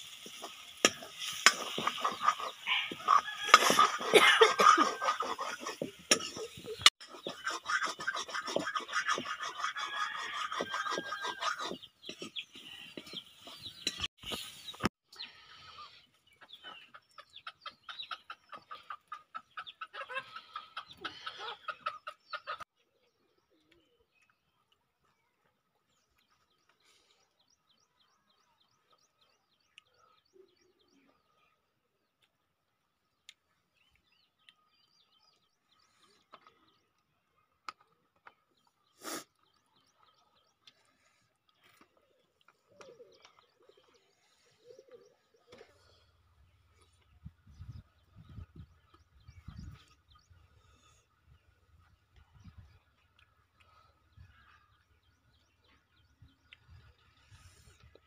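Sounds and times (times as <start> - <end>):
chickens clucking: 0.0 - 22.8, 35.3 - 55.9
bird cooing: 42.6 - 46.0.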